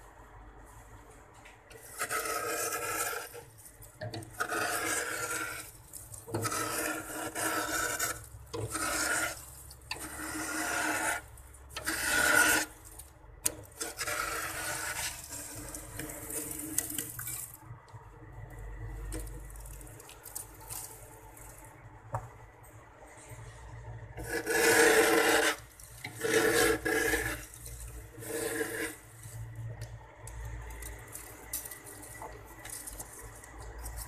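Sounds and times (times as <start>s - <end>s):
cup scraping frost in freezer: 1.7s - 17.6s, 24.2s - 34.0s.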